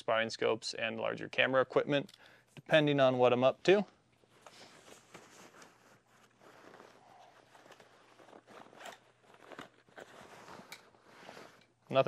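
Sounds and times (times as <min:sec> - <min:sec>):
fabric rustling: 0:04.2 - 0:12.0
zipper opening: 0:06.2 - 0:11.7.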